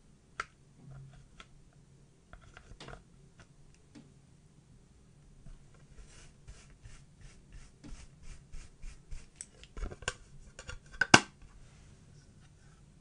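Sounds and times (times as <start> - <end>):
brush swishing over eyeshadow: 5.5 - 9.4.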